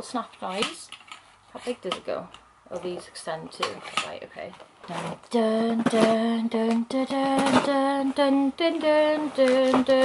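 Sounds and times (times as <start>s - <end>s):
woman singing: 4.9s - 10.0s.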